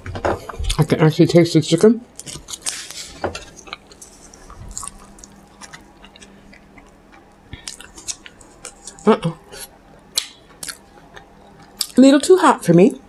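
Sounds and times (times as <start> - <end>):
person chewing food: 2.2 - 12.0.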